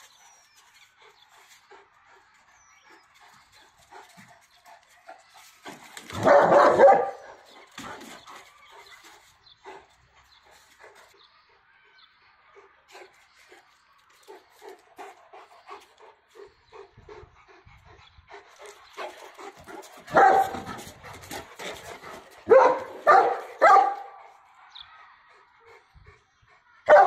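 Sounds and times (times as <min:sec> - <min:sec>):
dog barking loudly: 0:06.1 - 0:07.4, 0:20.1 - 0:20.7, 0:22.5 - 0:24.2.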